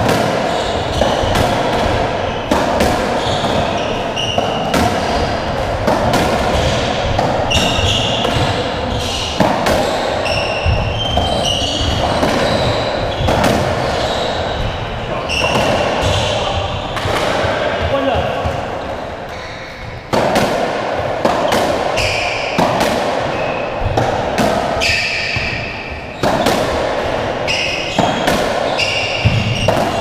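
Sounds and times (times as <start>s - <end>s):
shoe squeaks: 0.5s - 1.4s, 3.2s - 5.3s, 6.5s - 17.2s, 17.9s - 20.0s, 22.0s - 22.6s, 23.3s - 23.8s, 24.8s - 26.5s, 27.4s - 30.0s.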